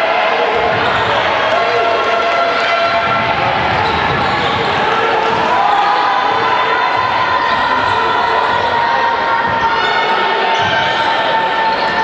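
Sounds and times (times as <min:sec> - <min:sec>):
basketball bouncing: 0:02.9 - 0:05.5.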